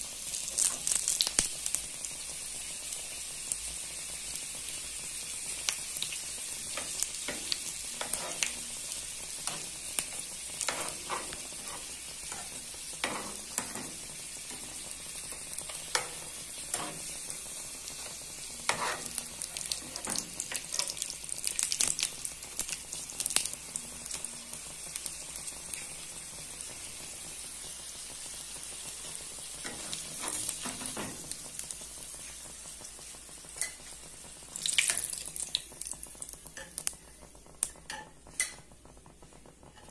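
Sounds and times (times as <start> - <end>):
pastries sizzling in hot oil: 0.0 - 39.9
metal spatula scraping pan: 8.0 - 8.6, 10.6 - 14.7, 15.9 - 17.1, 18.7 - 19.2.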